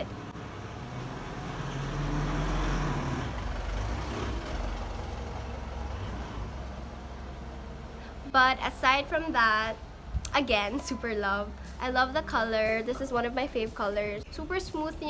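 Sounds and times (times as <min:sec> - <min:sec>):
vehicle engine driving past: 0:00.0 - 0:08.3.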